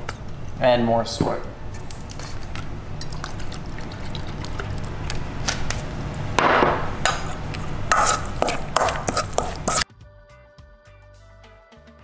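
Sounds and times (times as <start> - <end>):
utensils tapping against bowl: 7.0 - 9.8.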